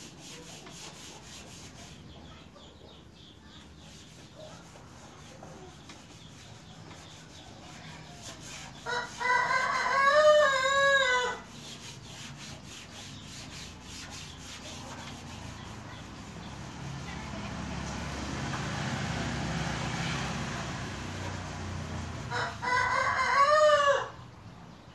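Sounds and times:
hand-sanding metal panel: 0:00.0 - 0:02.3, 0:03.6 - 0:17.8, 0:20.4 - 0:22.3
rooster crowing: 0:08.8 - 0:11.5, 0:22.3 - 0:24.2.

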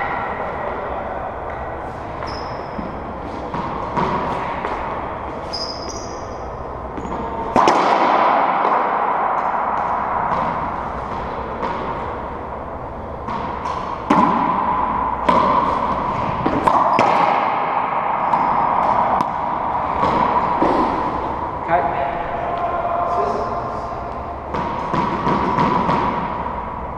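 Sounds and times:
racquetball hits echoing: 0:00.0 - 0:26.8
sneakers squeaking on hardwood: 0:02.1 - 0:06.4.

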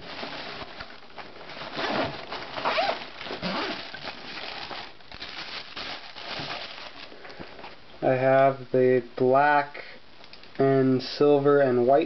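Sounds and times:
fabric and tissue paper rustling: 0:00.0 - 0:07.8
zipper being pulled open: 0:01.8 - 0:04.0.

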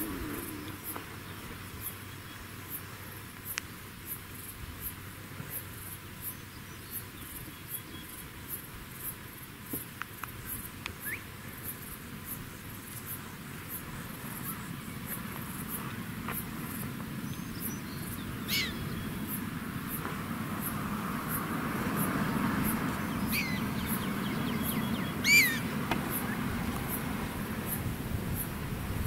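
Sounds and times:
insect chirping high pitch: 0:00.0 - 0:01.0, 0:17.5 - 0:19.5, 0:22.3 - 0:27.1
outdoor background hiss: 0:00.0 - 0:29.0
rising chirp: 0:17.7 - 0:19.3, 0:22.9 - 0:26.5.

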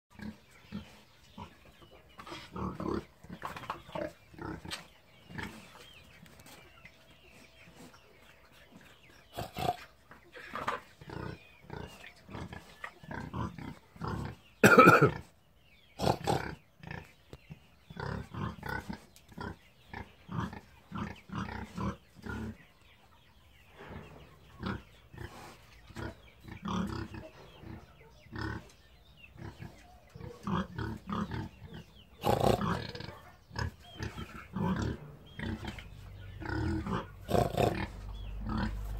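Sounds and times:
pig grunting: 0:02.2 - 0:03.4, 0:09.3 - 0:09.9, 0:11.0 - 0:15.3, 0:16.0 - 0:17.1, 0:17.9 - 0:22.7, 0:23.8 - 0:28.7, 0:29.3 - 0:38.9.

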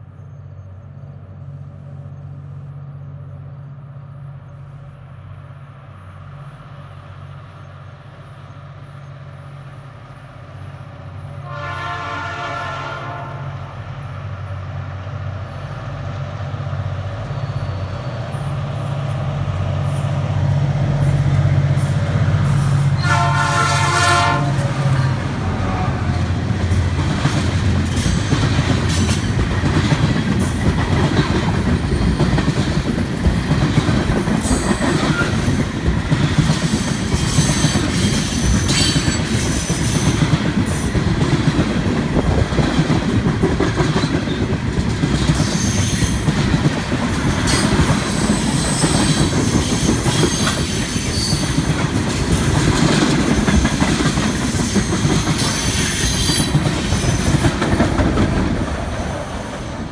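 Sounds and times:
high wheel squeals: 0:00.0 - 0:11.9, 0:12.6 - 0:19.0, 0:34.4 - 0:35.6, 0:37.2 - 0:40.9, 0:45.3 - 0:46.3, 0:47.2 - 0:51.7
train wheels rumbling on rail: 0:00.0 - 0:59.9.

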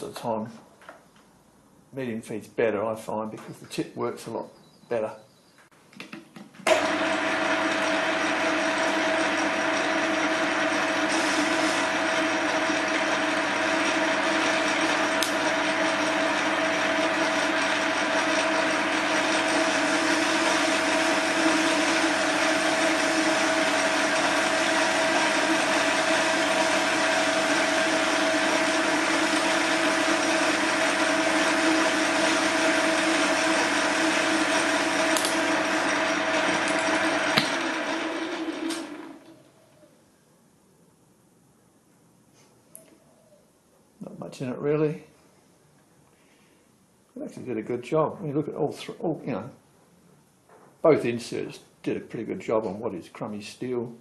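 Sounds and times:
metal lathe whining: 0:06.7 - 0:39.4.

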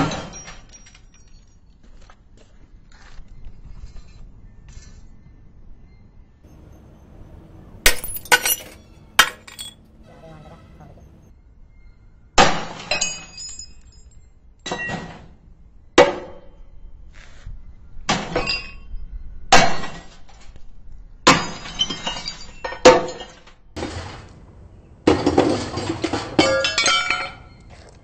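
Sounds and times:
hammer smashing glass: 0:07.8 - 0:09.8
clinking glass shards: 0:07.8 - 0:09.9, 0:12.8 - 0:14.2, 0:26.4 - 0:27.7.

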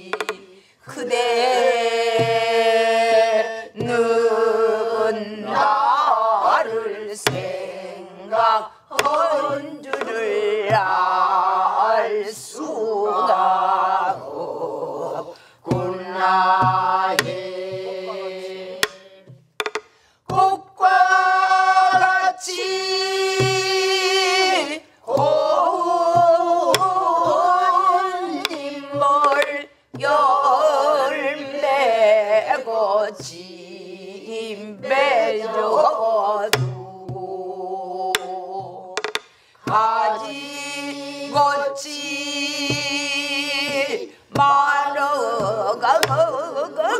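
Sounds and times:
woman singing folk song: 0:00.0 - 0:19.4, 0:20.2 - 0:46.9
group singing along: 0:00.0 - 0:46.9
barrel drum strokes: 0:15.6 - 0:31.6, 0:34.8 - 0:46.9.

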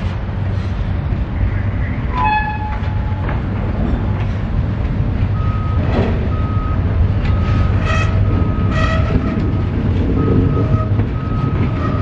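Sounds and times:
diesel locomotive rumble: 0:00.0 - 0:12.0
backup alarm beeping: 0:05.3 - 0:12.0.

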